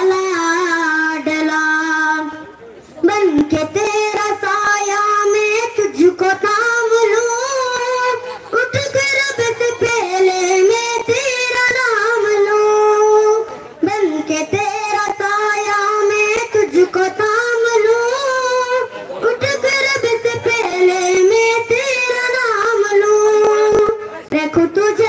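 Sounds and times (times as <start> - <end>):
boy singing into microphone: 0.0 - 25.0.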